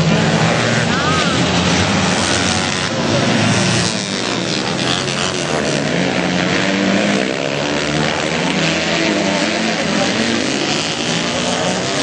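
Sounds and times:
motorcycle engines racing: 0.0s - 12.0s.

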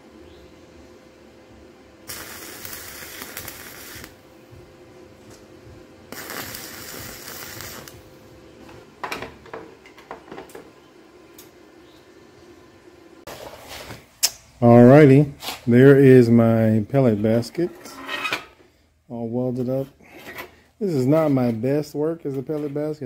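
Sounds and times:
electric arc welding: 2.0s - 4.2s, 6.1s - 8.1s.

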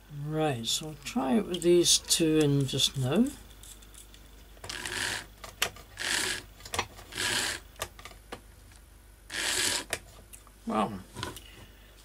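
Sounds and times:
small electric motor whirring: 4.6s - 5.3s, 6.0s - 6.5s, 7.1s - 7.6s, 9.3s - 10.0s.

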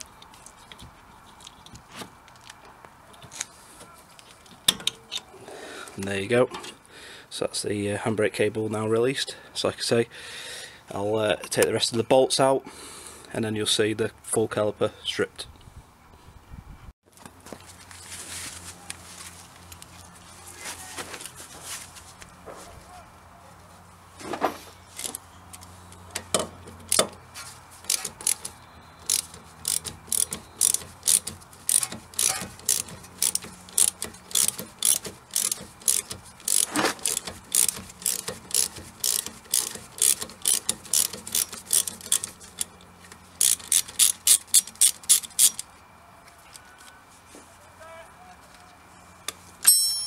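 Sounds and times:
socket ratchet clicking: 26.0s - 27.2s, 27.9s - 42.7s, 43.4s - 45.7s
tool clunks: 26.1s - 27.2s.

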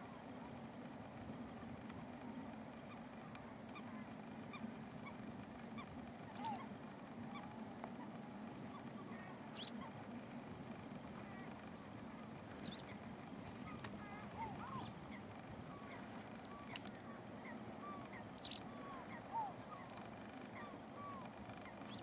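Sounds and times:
faint short bird calls: 3.7s - 10.1s, 11.0s - 22.0s.

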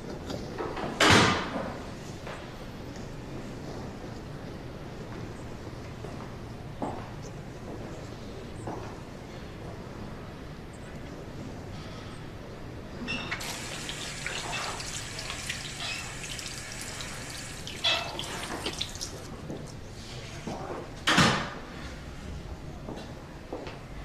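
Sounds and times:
tap water splashing into sink: 13.4s - 19.3s.

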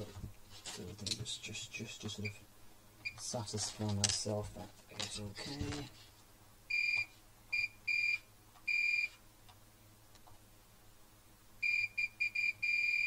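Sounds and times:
multimeter continuity beeps: 6.7s - 9.1s, 11.6s - 13.0s.

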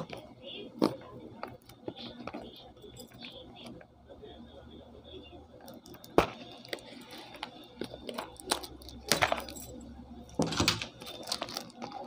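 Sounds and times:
plastic wrap crinkling: 10.4s - 12.0s.

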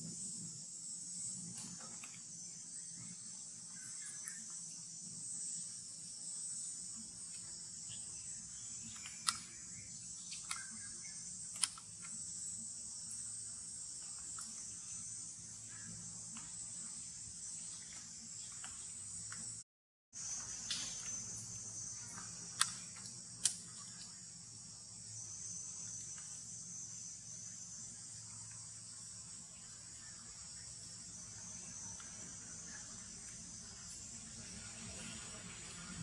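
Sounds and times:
insects droning: 0.0s - 19.6s, 20.2s - 36.0s
sharp clicks: 8.8s - 9.6s, 10.2s - 12.2s, 22.5s - 23.6s.

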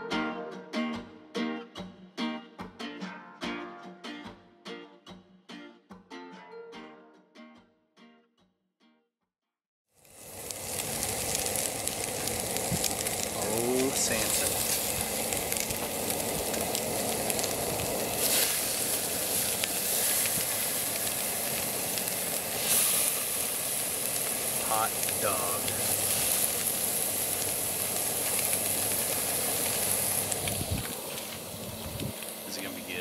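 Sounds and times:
fish sizzling on a grill: 10.0s - 33.0s.

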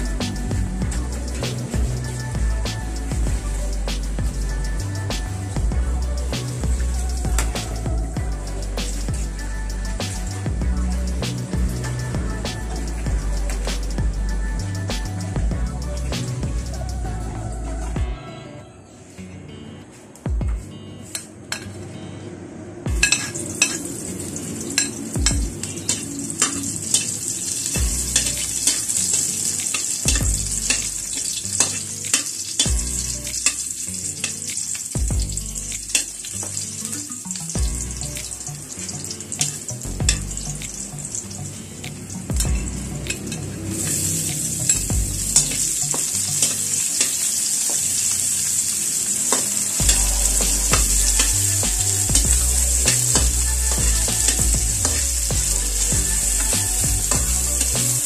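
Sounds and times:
onion and garlic sizzling in oil: 0.0s - 17.5s, 23.0s - 58.0s.

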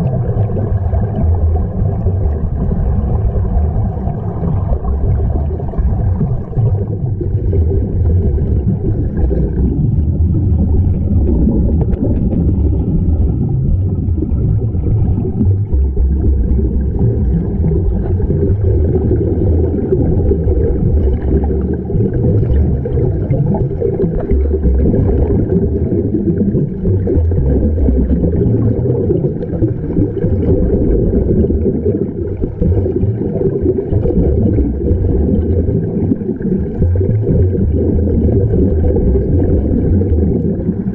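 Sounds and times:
air bubbling underwater: 0.0s - 40.9s
underwater rumble: 0.0s - 40.9s.

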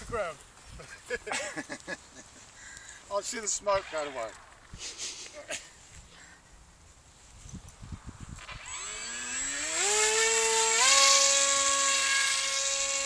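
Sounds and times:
electric motor and propeller whine: 7.8s - 13.0s.

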